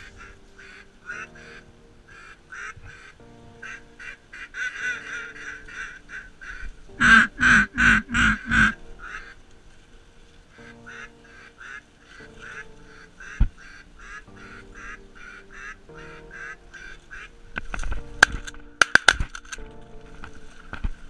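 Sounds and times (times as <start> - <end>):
duck quacking: 0.0 - 9.4, 10.9 - 17.3.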